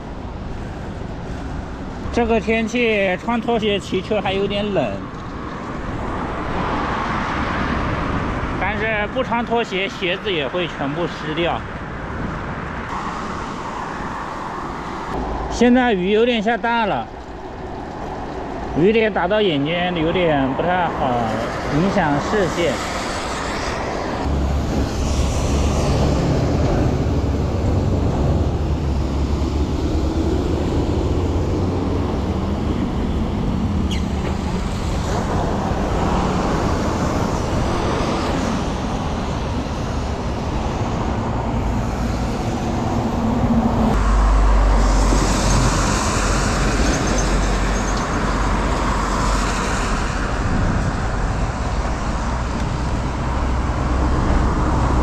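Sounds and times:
heavy vehicle passing: 0:12.5 - 0:55.0
tyres hissing on wet road: 0:12.9 - 0:15.1, 0:21.2 - 0:32.5, 0:33.3 - 0:55.0.

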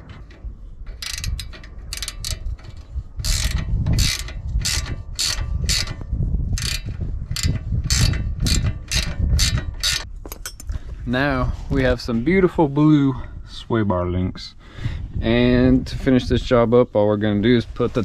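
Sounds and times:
ratchet wrench clicking: 0:00.0 - 0:10.7.

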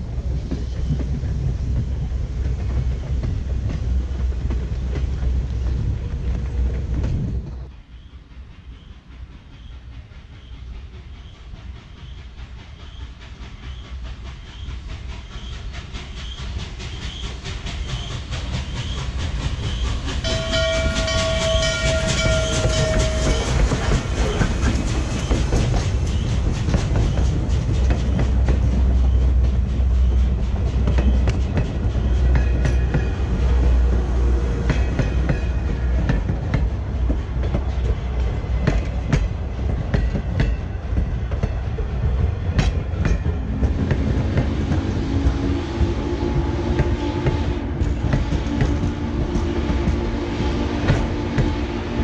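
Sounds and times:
steam locomotive passing: 0:00.0 - 0:52.0
train wheel clicks on rail joints: 0:09.1 - 0:51.6
steam whistle chord: 0:20.2 - 0:23.8.

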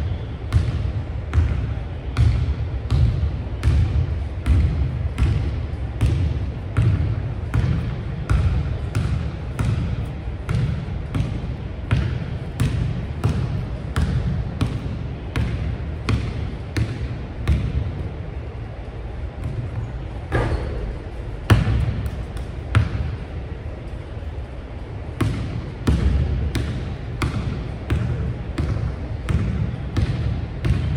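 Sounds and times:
basketball bouncing on hardwood floor: 0:02.2 - 0:17.8, 0:25.2 - 0:30.9.

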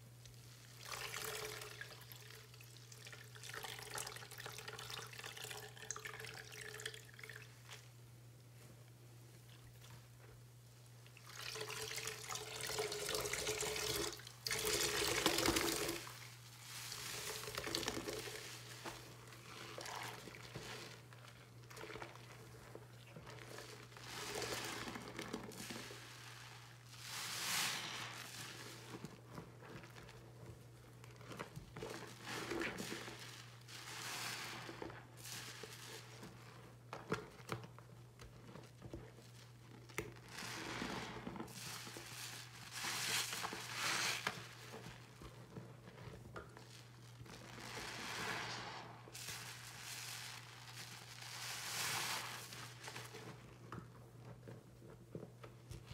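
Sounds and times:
sponge squelching in soapy water: 0:00.0 - 0:08.0, 0:09.4 - 0:55.9.

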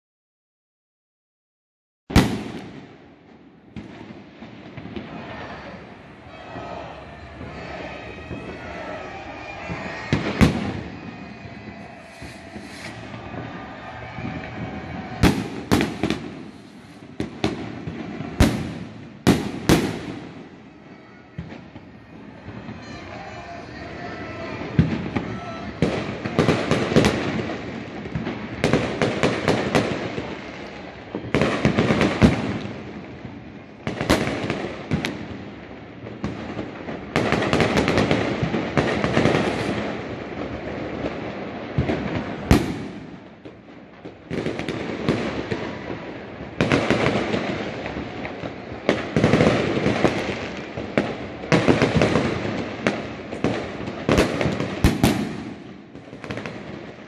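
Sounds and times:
sharp firework bang: 0:02.1 - 0:03.0, 0:09.6 - 0:20.6, 0:41.8 - 0:43.2, 0:51.0 - 0:55.7
fireworks crackling and banging: 0:02.1 - 0:57.0.

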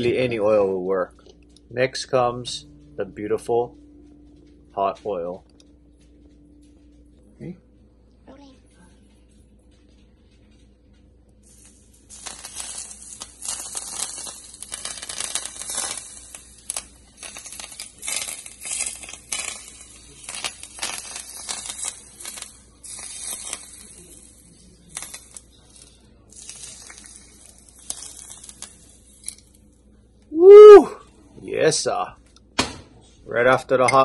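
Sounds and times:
hot oil sizzling and crackling: 0:11.4 - 0:29.6.

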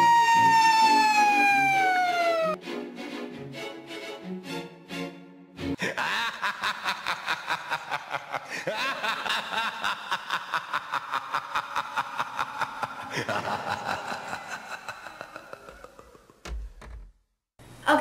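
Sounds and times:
cackling laughter: 0:05.8 - 0:16.4.

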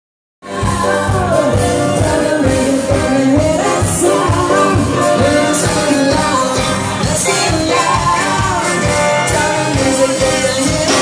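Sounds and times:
live band playing pop song: 0:00.4 - 0:11.0
person singing: 0:00.4 - 0:11.0
steady drum beat: 0:00.6 - 0:11.0.

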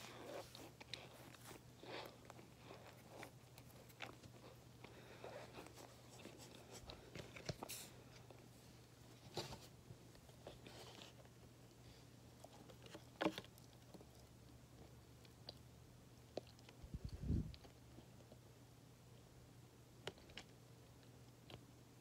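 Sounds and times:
mouth and handling noises: 0:00.0 - 0:15.7
low steady hum: 0:00.0 - 0:22.0.

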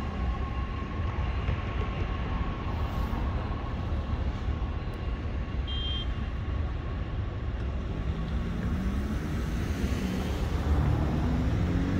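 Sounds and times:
city traffic rumble: 0:00.0 - 0:11.9
vehicle engine accelerating: 0:07.7 - 0:11.9.

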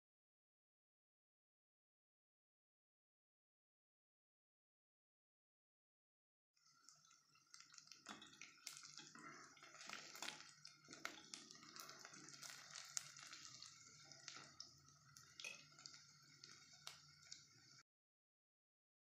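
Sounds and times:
onions sizzling in oil: 0:06.6 - 0:17.8.

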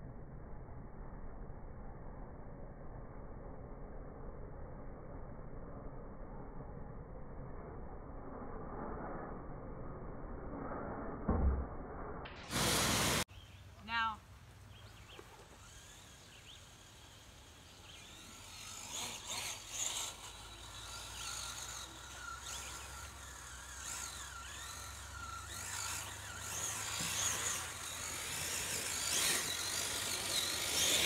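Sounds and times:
model truck motor whining: 0:12.5 - 0:13.2, 0:15.1 - 0:31.0.

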